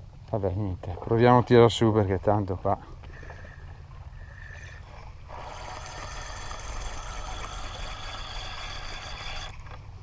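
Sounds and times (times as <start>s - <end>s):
fishing reel whirring: 4.4s - 9.7s.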